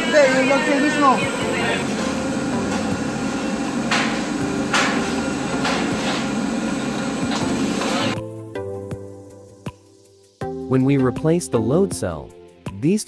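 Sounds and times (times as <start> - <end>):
industrial machinery hum and rush: 0.0 - 8.2
background music: 0.0 - 13.0.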